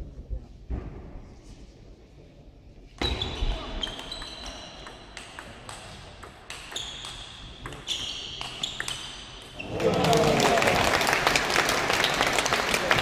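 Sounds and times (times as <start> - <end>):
shoes squeaking on floor: 3.0 - 4.9, 6.7 - 9.2.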